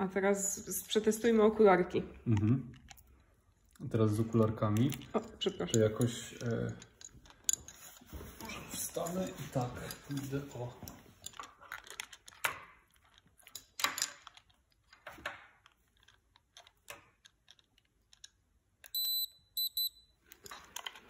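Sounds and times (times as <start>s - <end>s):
high electronic beeps: 19.0s - 20.1s.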